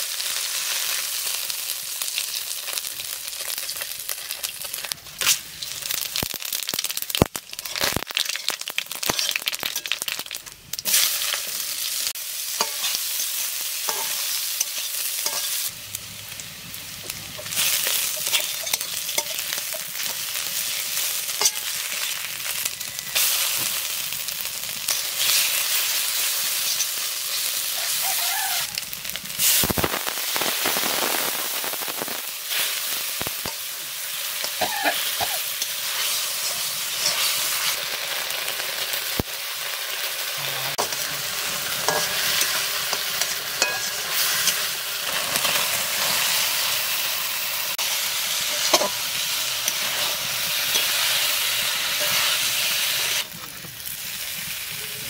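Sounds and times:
food sizzling in hot oil: 0.0 - 55.0
spoon scraping and clinking pan: 12.6 - 15.6, 21.4 - 22.0, 41.7 - 44.7, 48.5 - 49.0.

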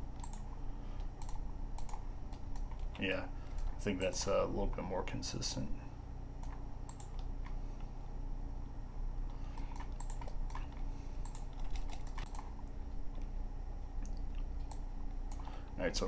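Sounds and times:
steady low hum: 0.0 - 16.0
computer keyboard clicking: 0.2 - 0.4, 1.2 - 3.7, 6.4 - 7.6, 9.6 - 12.5.

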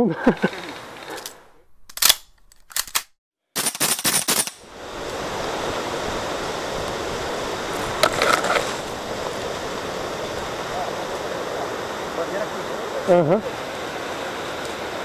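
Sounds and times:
steady rushing noise: 4.6 - 15.0.

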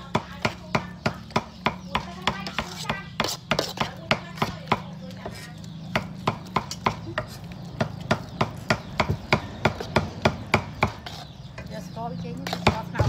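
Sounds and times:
rhythmic chopping knocks: 0.0 - 5.2, 5.8 - 11.0.

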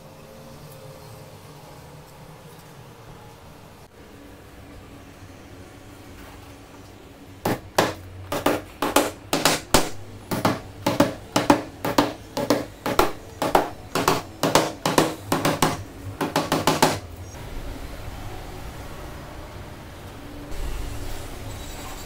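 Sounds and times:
hammer driving nails: 7.4 - 17.1.

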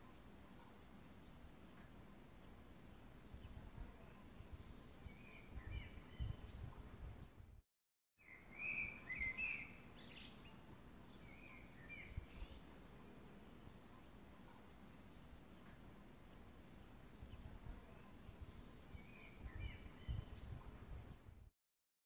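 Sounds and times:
faint birds chirping: 0.0 - 7.5, 8.2 - 21.5.

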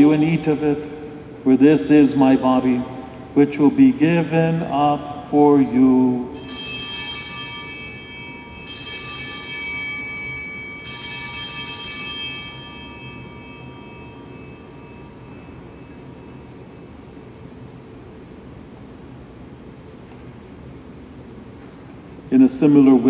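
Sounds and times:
altar bells ringing: 6.4 - 18.1, 22.4 - 23.0.

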